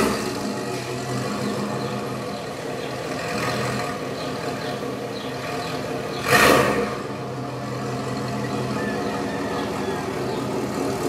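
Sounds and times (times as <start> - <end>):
truck engine rumbling: 0.0 - 11.0.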